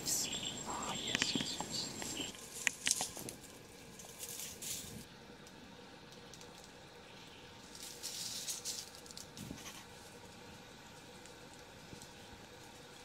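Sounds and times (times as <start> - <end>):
dry leaves rustling: 2.1 - 5.1, 7.6 - 13.0.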